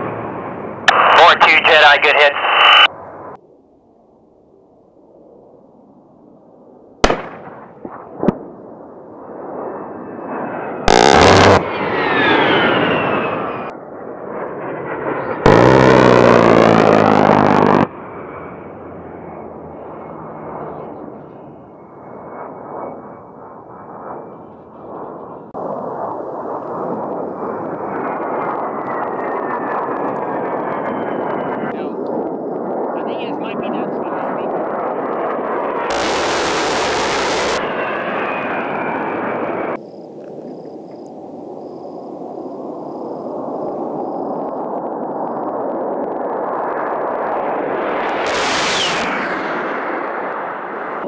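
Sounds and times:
jet engines whining: 0.0s - 3.4s, 7.0s - 51.0s
rotary cannon burst: 7.0s - 8.6s, 10.8s - 13.7s, 15.4s - 17.9s, 35.5s - 38.0s, 47.0s - 51.0s
rotary cannon firing: 7.0s - 8.6s, 10.9s - 11.7s, 15.5s - 17.9s.

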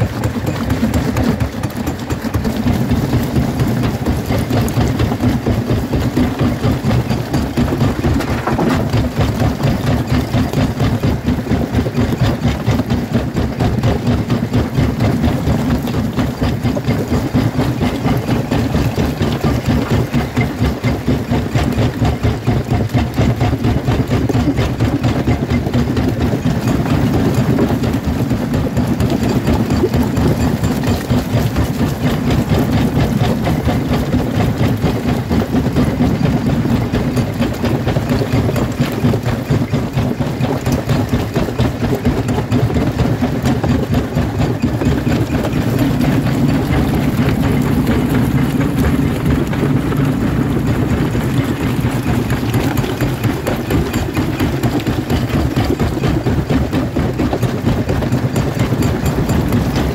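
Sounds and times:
jaw crusher pulsing: 0.0s - 59.9s
rock grinding: 6.2s - 9.6s, 44.5s - 56.0s.

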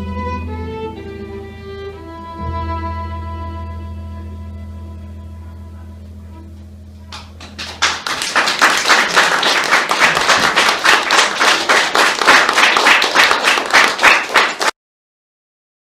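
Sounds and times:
audience applauding: 7.1s - 14.8s.

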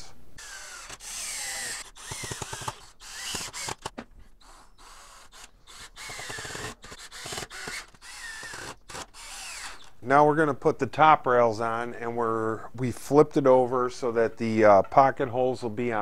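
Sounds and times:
cordless drill driving screws: 0.0s - 10.0s.

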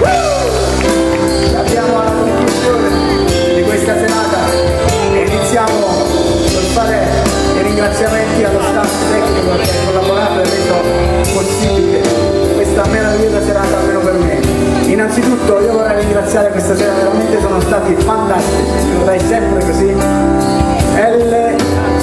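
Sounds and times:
pop band playing: 0.0s - 22.0s
man singing into microphone: 7.6s - 19.8s.

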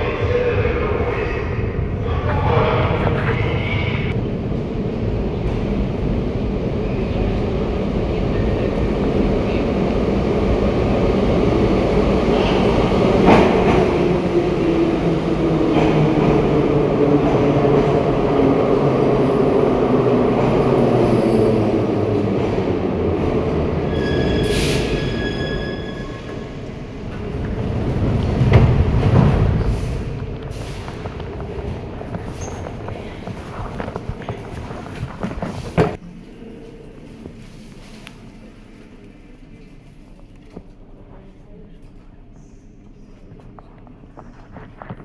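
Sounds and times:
train rumbling on rails: 0.0s - 45.0s
high squeal: 23.9s - 26.4s.

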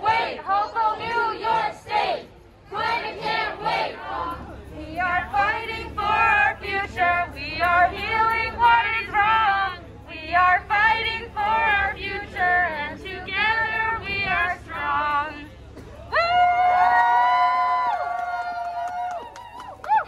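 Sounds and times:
woman singing through megaphone: 2.7s - 15.5s.

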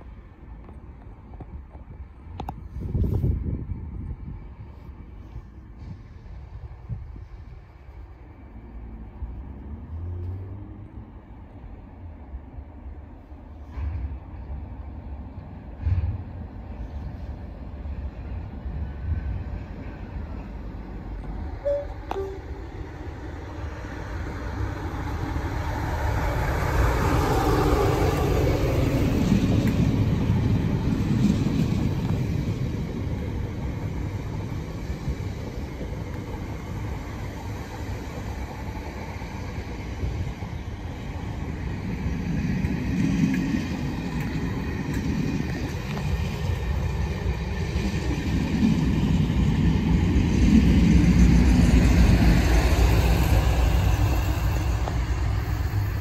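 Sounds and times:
diesel locomotive passing: 0.0s - 56.0s
train bogies rolling over rails: 13.4s - 56.0s.

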